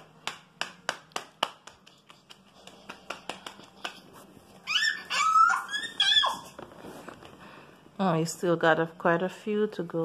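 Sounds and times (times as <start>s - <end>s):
cardboard pieces tapping on tiled floor: 0.1s - 4.2s.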